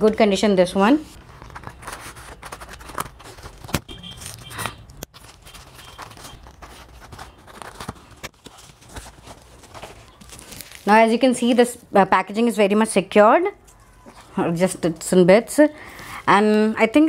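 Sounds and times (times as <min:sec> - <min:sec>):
cardboard flaps scraping and rustling: 0:01.1 - 0:11.0.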